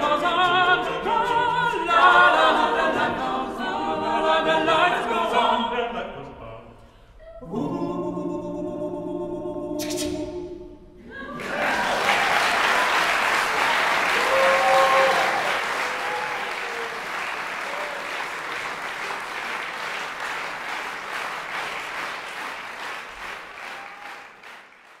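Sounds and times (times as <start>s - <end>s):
audience applauding: 11.2s - 25.0s.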